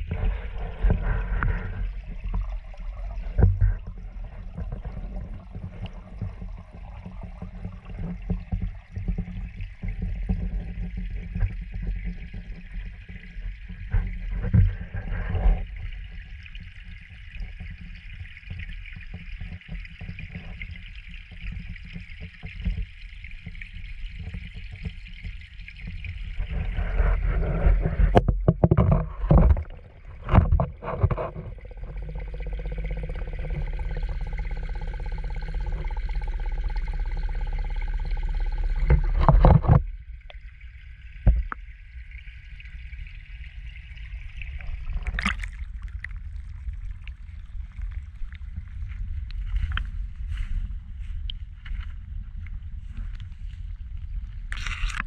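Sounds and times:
muffled underwater rumble and hiss: 0.0 - 55.0
water splash: 44.5 - 48.0.

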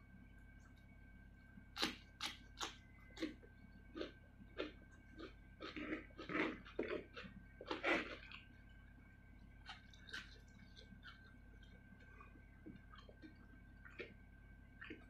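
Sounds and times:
wet crunchy chewing: 1.8 - 8.7, 9.6 - 14.2, 14.8 - 15.0.

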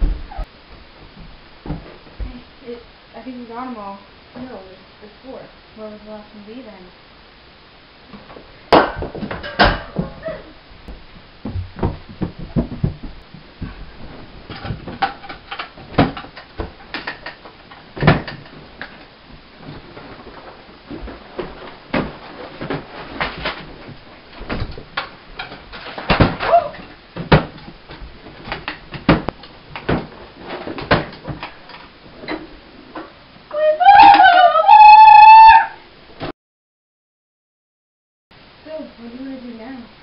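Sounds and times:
knocks and clatter: 10.9 - 32.5
wooden drawers knocking: 11.5 - 13.8
clothes rustling: 17.5 - 27.1.

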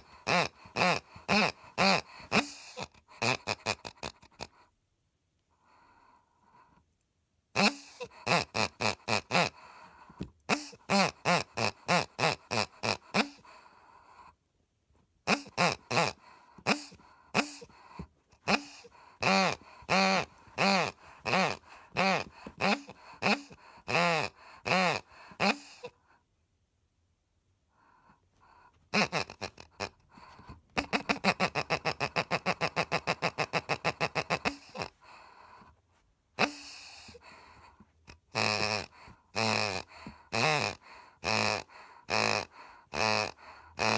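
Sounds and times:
rubber dog toy oinking: 0.0 - 4.7, 7.5 - 14.4, 15.2 - 26.1, 28.4 - 43.9.

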